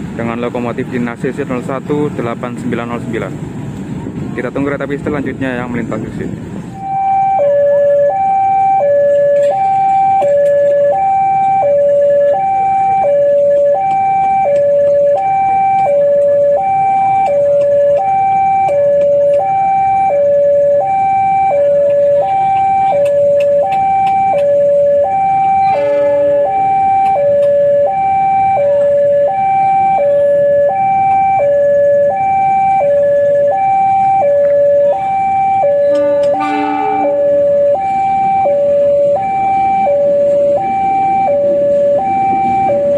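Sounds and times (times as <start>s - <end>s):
level crossing two-tone alarm: 6.8s - 42.9s
locomotive horn blast: 25.5s - 26.8s, 35.7s - 37.8s.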